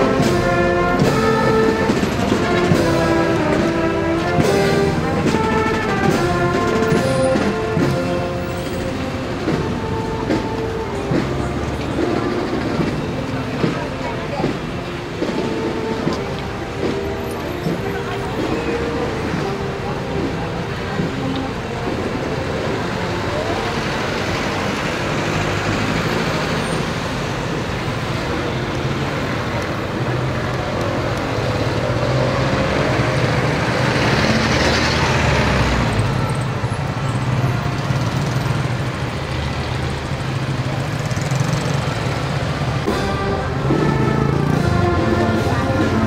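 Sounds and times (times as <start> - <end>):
traffic engines droning: 0.0 - 46.0.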